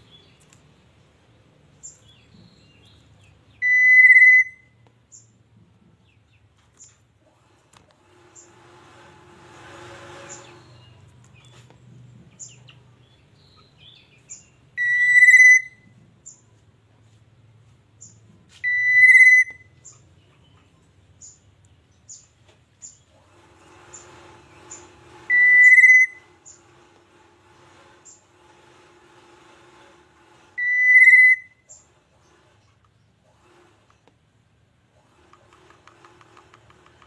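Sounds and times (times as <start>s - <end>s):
short high bird chirps: 3.5s - 5.2s, 14.3s - 15.8s, 18.0s - 20.0s, 24.7s - 26.3s, 30.6s - 31.9s
bird whistled notes: 3.6s - 4.8s, 14.8s - 15.8s, 18.6s - 20.0s, 25.3s - 26.3s, 30.6s - 31.8s.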